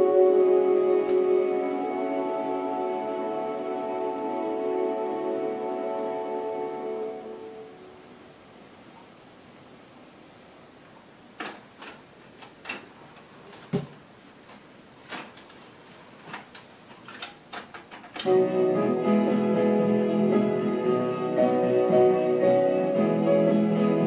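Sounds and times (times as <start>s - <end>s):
music from tape: 0.0s - 7.8s, 18.2s - 24.0s
cassette changer clicking and clunking: 11.4s - 12.9s.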